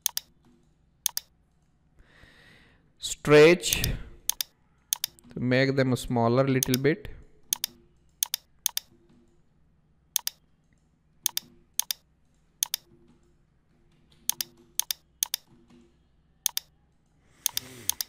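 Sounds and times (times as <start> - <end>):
mouse and keyboard clicks: 0.0 - 0.3, 1.0 - 1.7, 3.7 - 5.3, 6.6 - 6.9, 7.5 - 8.9, 10.2 - 12.0, 12.6 - 12.9, 14.1 - 15.5, 16.4 - 16.7, 17.4 - 18.0.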